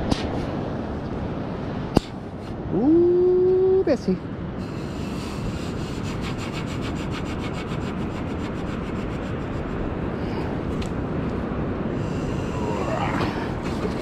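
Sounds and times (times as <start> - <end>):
steady low rush: 0.0 - 14.0.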